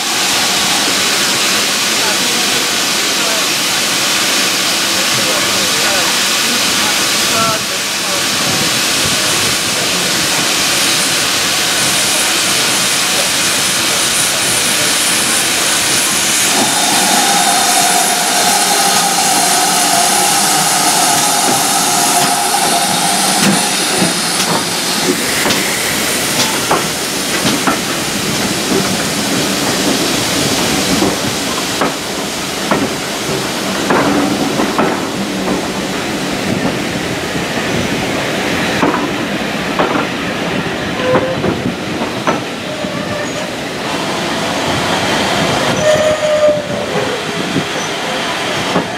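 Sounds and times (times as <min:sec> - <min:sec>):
steam locomotive hissing: 0:00.0 - 0:48.9
coach wheels clicking over rail joints: 0:22.2 - 0:37.1, 0:38.7 - 0:43.5.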